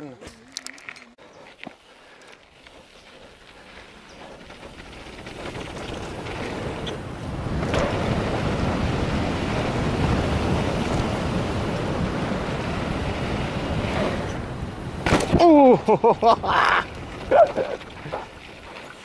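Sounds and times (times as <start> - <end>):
bike tyres rolling on dirt: 0.2 - 19.0
wind rushing over microphone: 4.6 - 18.7.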